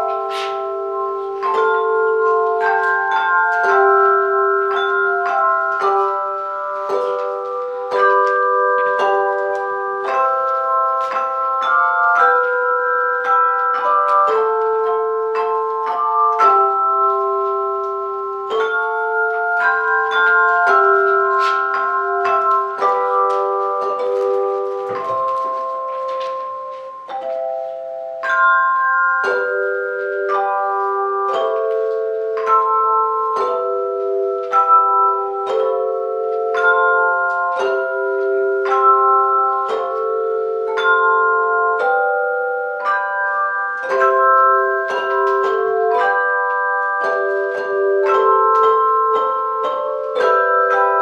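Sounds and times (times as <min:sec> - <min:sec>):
handbell choir ringing a hymn: 0:00.0 - 0:51.0.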